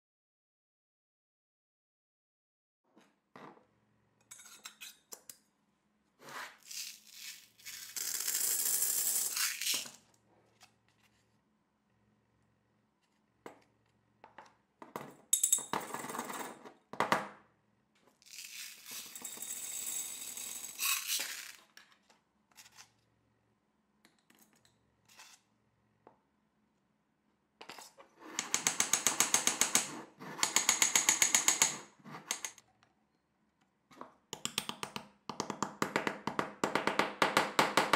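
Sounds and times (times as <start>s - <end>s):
steel balls rattling into metal tube: 6.7s - 10.0s, 18.2s - 21.8s.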